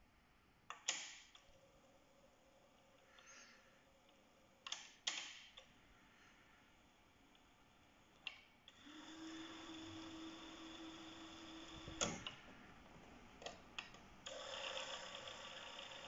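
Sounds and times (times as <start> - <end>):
tape spooling whir: 8.7 - 12.5, 14.2 - 16.0.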